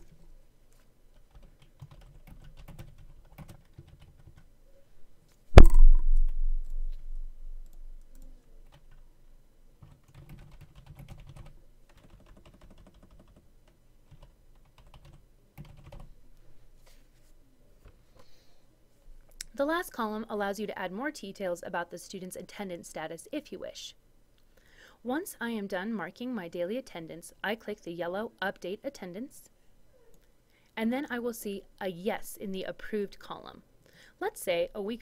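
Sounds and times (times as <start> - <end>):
computer keyboard typing: 1.1 - 4.4, 9.8 - 13.4, 14.1 - 16.1
loud thump with low rumble: 5.6 - 6.6.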